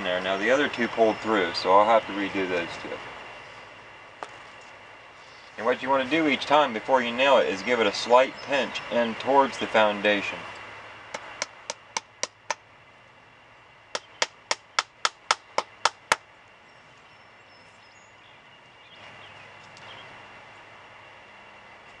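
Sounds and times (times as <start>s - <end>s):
hive tool tapping nails into wood: 11.1s - 12.6s, 14.0s - 16.2s.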